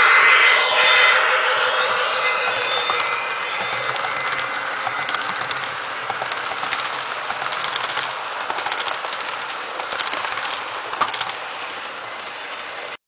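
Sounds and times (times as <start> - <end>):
model train wheels clattering on rails: 2.4 - 13.0.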